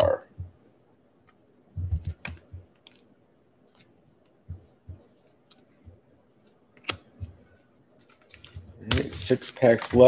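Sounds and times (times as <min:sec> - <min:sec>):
cards clicking on wooden table: 0:01.9 - 0:03.1, 0:06.7 - 0:07.4.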